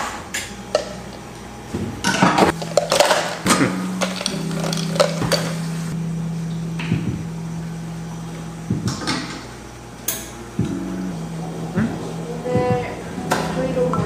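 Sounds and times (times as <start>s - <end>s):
low hum: 0.5s - 14.0s
ice cubes clinking in cup: 2.6s - 3.4s, 4.0s - 5.7s.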